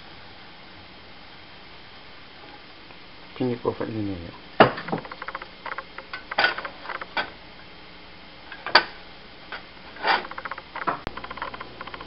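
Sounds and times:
frying pan oil crackling: 4.6 - 7.4, 8.5 - 12.0.

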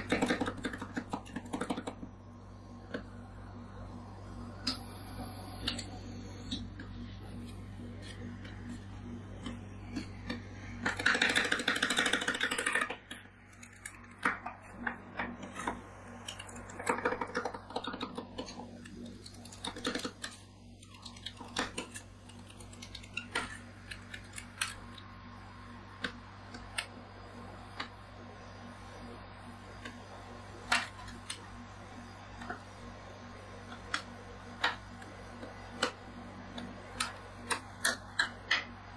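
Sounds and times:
spatulas tapping and scraping: 0.0 - 2.1
steady low hum: 0.0 - 38.9.

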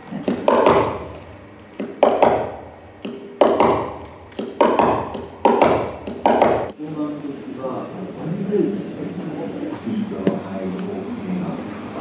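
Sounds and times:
sharp reverberant knocks: 0.2 - 6.8.

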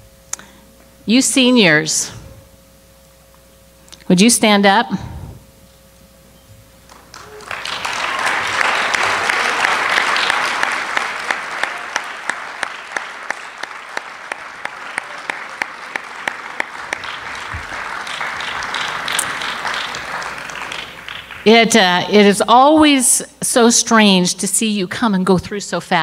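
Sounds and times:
sharp single claps: 6.9 - 21.5
audience applauding: 6.9 - 21.9.

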